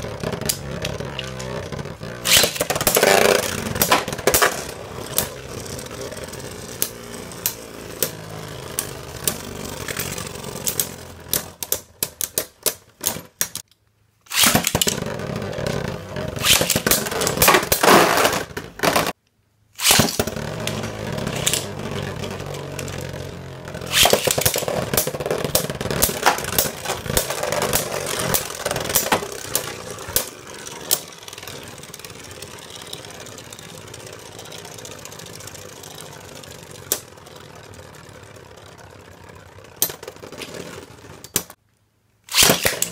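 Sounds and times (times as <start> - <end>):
spinning tops whirring on plastic: 0.0 - 13.6, 14.3 - 19.0, 19.8 - 41.6
spinning tops clashing clicks: 2.2 - 5.5, 19.8 - 35.4.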